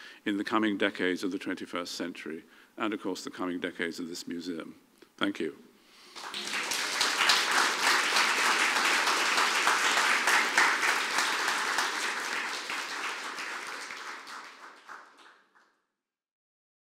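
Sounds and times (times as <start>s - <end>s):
audience applauding: 6.1s - 15.7s.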